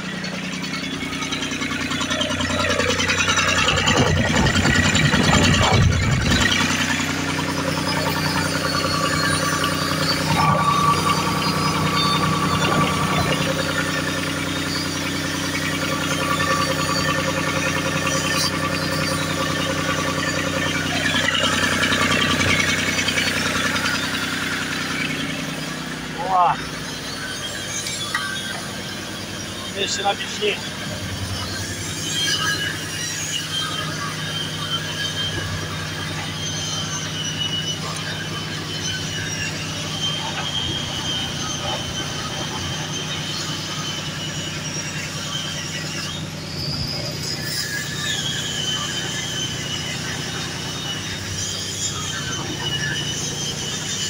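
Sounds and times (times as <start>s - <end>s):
diesel engine idling: 0.0s - 54.0s
thin high squeal: 0.0s - 54.0s.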